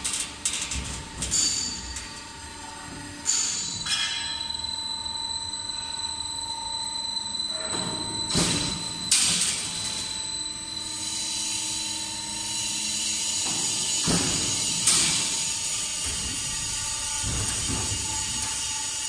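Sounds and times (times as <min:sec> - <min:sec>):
roll forming machine whining: 0:00.0 - 0:19.0.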